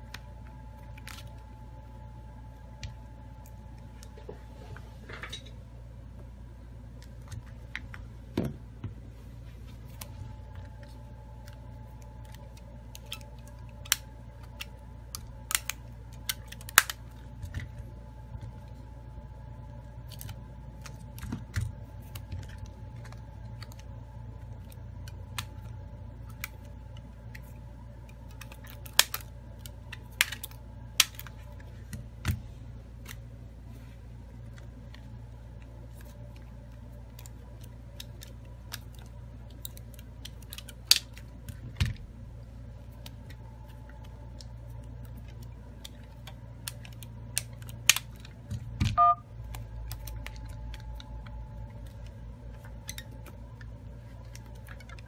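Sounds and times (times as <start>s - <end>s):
steady low hum: 0.0s - 55.0s
dial-pad key tone: 49.0s - 49.3s.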